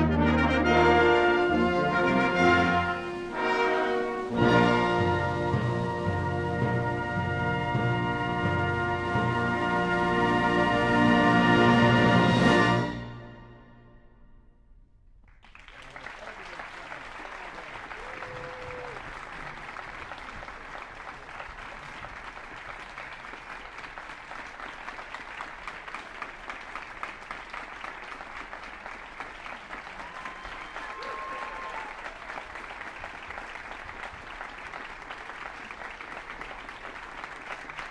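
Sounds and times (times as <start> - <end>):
audience applauding: 0.6 - 5.7, 15.3 - 37.9
calls from the crowd: 15.7 - 37.9.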